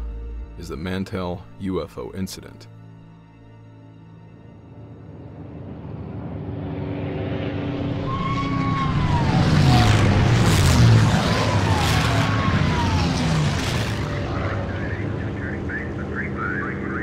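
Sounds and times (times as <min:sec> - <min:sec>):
aircraft passing by: 0:04.4 - 0:17.0.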